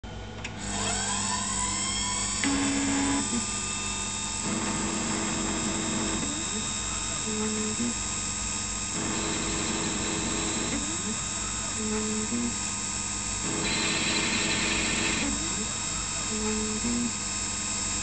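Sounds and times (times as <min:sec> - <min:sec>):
lathe spindle motor whine: 0:00.6 - 0:17.9
stepper motor tones: 0:13.4 - 0:17.2.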